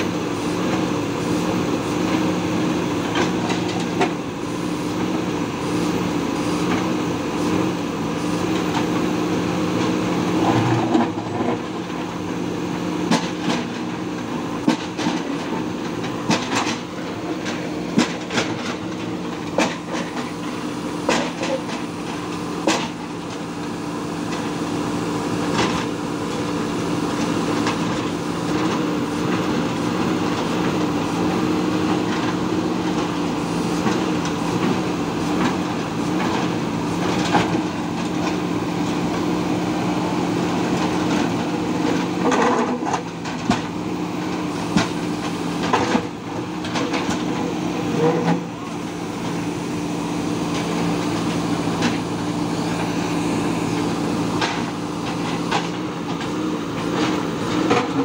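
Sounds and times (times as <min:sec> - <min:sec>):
diesel engines running: 0:00.0 - 0:58.0.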